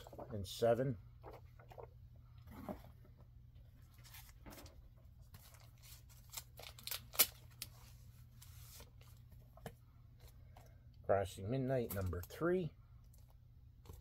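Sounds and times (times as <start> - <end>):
plastic sleeves crinkling: 3.8 - 9.3.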